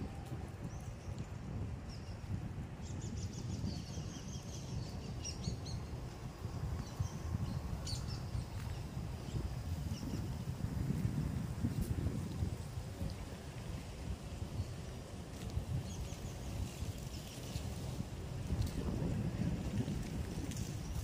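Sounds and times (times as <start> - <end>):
wind rumble on microphone: 0.0 - 21.0
small birds chirping: 0.7 - 10.4.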